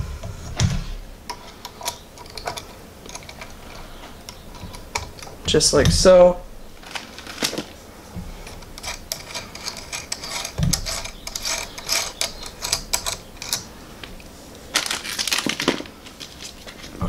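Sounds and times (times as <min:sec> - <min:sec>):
metal plugs clicking and rattling: 0:01.3 - 0:06.1, 0:08.4 - 0:16.9
plastic bags crinkling: 0:06.8 - 0:08.0, 0:14.6 - 0:17.0.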